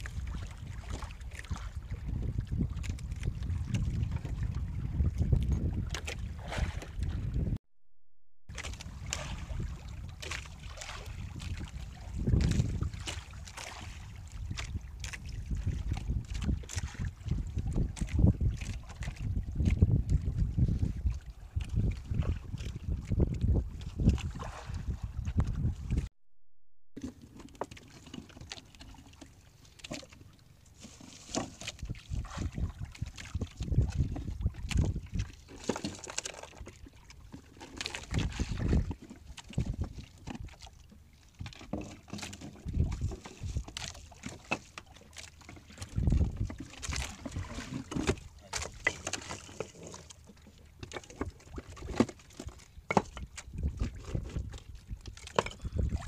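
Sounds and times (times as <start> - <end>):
wind on microphone: 0.0 - 7.6, 8.5 - 26.1, 31.6 - 35.8, 37.8 - 40.7, 42.5 - 44.1, 45.7 - 48.8, 52.8 - 56.0
knocks and bumps on boat: 8.6 - 14.9, 38.1 - 40.6, 45.5 - 49.8, 50.8 - 56.0.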